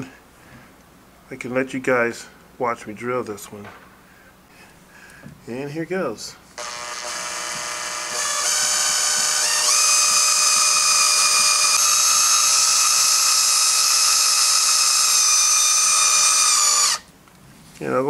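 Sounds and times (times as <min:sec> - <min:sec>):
power drill whining: 0:06.6 - 0:17.1.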